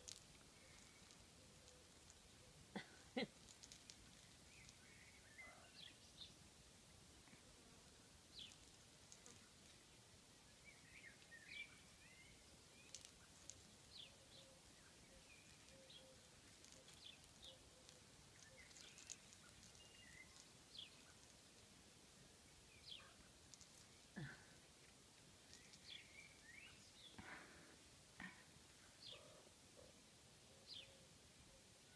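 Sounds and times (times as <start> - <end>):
faint bird chirps: 4.1 - 6.4, 10.4 - 21.3, 22.6 - 24.4, 25.4 - 27.4, 28.2 - 31.9.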